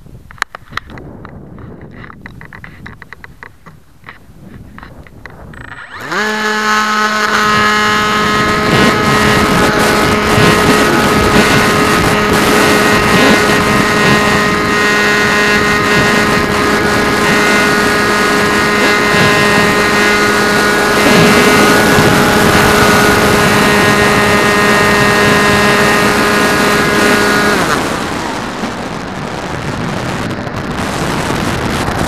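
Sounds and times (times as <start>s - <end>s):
rushing air: 0.8s - 32.0s
model airplane motor drone: 1.8s - 32.0s.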